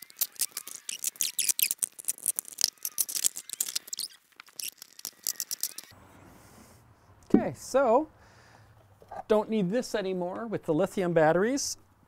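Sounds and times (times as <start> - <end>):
plastic parts clicking and rattling: 0.0 - 5.9.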